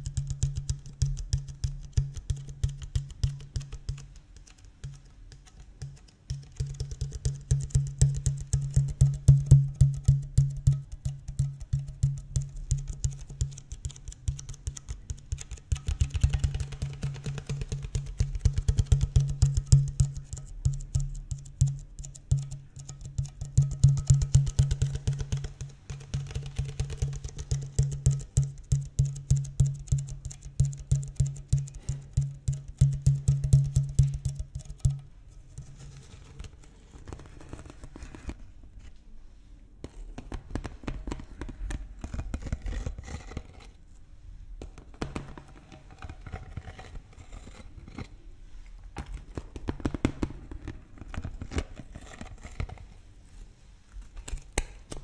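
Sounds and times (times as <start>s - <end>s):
fingers tapping plastic bottle: 0.0s - 35.7s, 44.6s - 46.3s.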